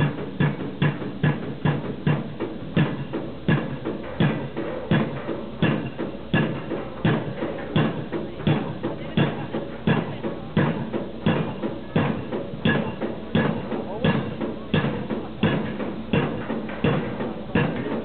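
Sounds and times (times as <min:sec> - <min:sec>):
pile driver hammer blows: 0:00.0 - 0:18.0.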